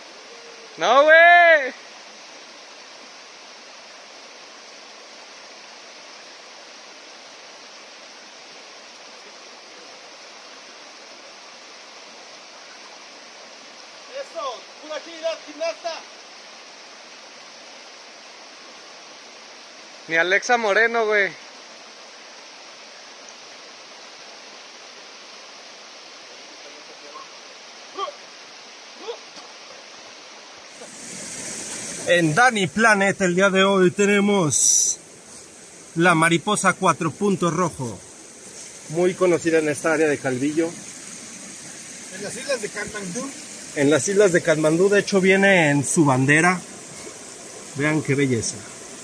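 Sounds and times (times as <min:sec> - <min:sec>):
river rushing over rocks: 0:00.0 - 0:49.0
person shouting: 0:27.9 - 0:28.2, 0:29.0 - 0:29.2.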